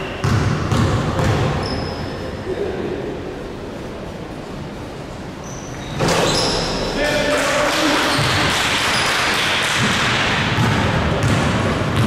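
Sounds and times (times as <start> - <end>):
sneaker squeaks on court: 0.0 - 2.3, 5.4 - 7.0
ball bouncing: 0.2 - 1.6, 8.1 - 12.0.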